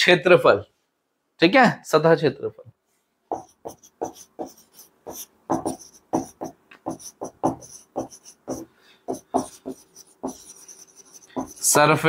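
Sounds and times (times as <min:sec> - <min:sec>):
marker pen squeaking on a whiteboard: 0:03.3 - 0:12.0.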